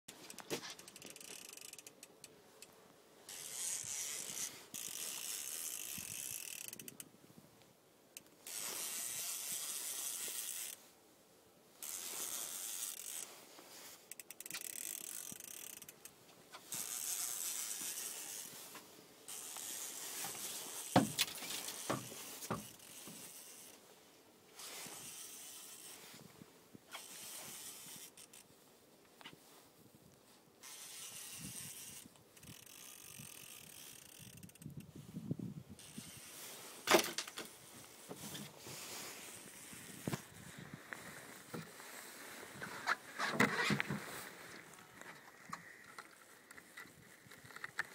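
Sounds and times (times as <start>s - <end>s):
fishing reel gears whirring: 0.3s - 2.1s, 3.3s - 7.0s, 8.4s - 10.8s, 11.8s - 13.3s, 14.1s - 16.1s, 16.7s - 18.6s, 19.3s - 20.9s, 21.6s - 23.8s, 25.0s - 26.0s, 27.0s - 28.5s, 30.6s - 34.8s, 35.8s - 36.4s.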